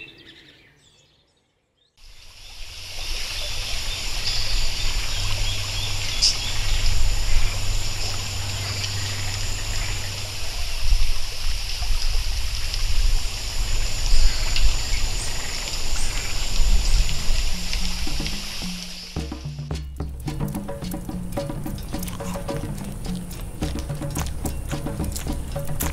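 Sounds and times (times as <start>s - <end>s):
rushing hiss: 2.0s - 25.9s.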